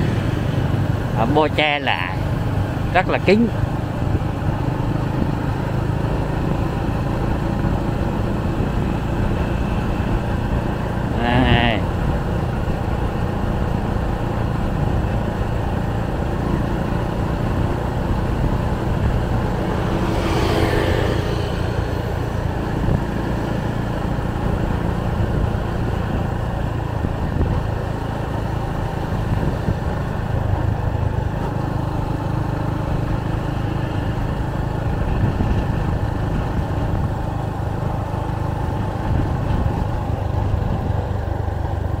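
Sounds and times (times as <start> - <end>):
loud vehicle passing: 0.0 - 42.0
street traffic: 0.0 - 42.0.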